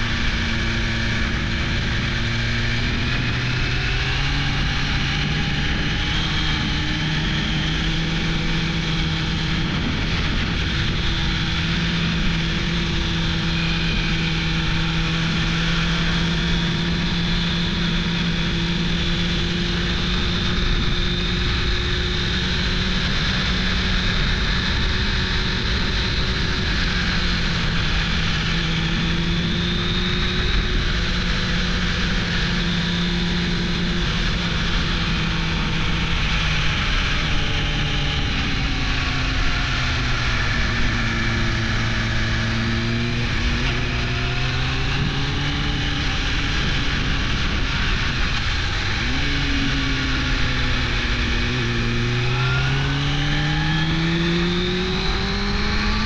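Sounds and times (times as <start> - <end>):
motorcycle engine running: 0.0 - 56.0
wind rushing: 39.9 - 56.0.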